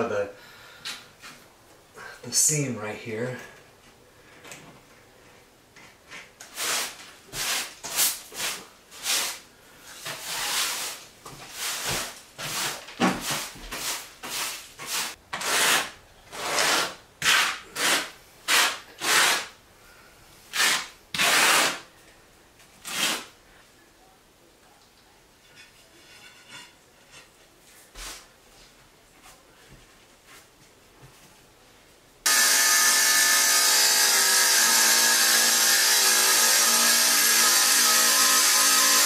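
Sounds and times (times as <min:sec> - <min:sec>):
hand tool scraping tile: 0:06.4 - 0:09.4, 0:10.0 - 0:19.5, 0:20.5 - 0:21.8.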